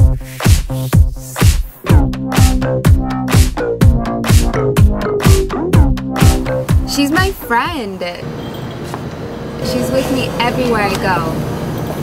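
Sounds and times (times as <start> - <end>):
electronic dance music: 0.0 - 7.9.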